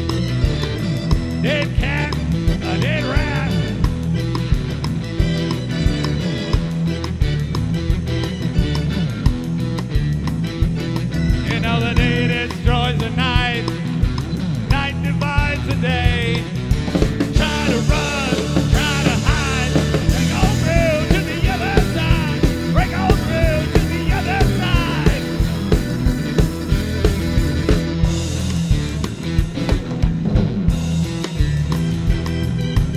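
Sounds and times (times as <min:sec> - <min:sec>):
live rock band playing: 0:00.0 - 0:32.9
man singing: 0:01.4 - 0:03.9, 0:11.4 - 0:13.9, 0:14.7 - 0:16.6, 0:17.3 - 0:25.6.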